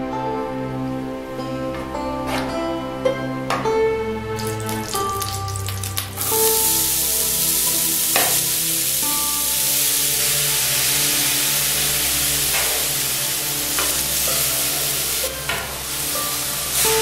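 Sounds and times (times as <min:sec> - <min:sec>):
herbs sizzling in hot oil: 0:04.4 - 0:17.0.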